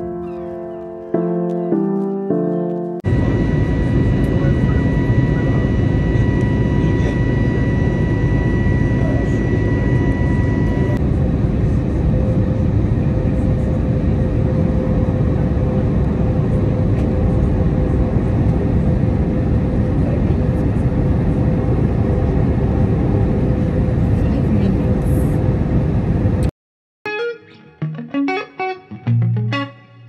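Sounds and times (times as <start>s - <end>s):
airliner cabin engine rumble: 3.0s - 26.5s
airflow noise: 3.1s - 11.0s
faint steady tone: 3.1s - 11.0s.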